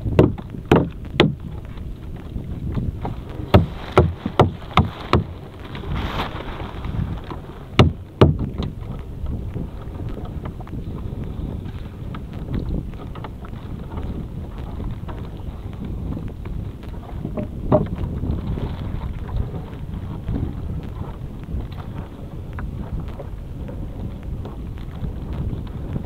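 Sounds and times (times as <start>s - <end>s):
net knocking against boat hull: 0.0s - 1.5s, 2.7s - 5.4s, 7.2s - 8.7s, 17.1s - 18.2s
wind noise on microphone: 0.0s - 26.0s.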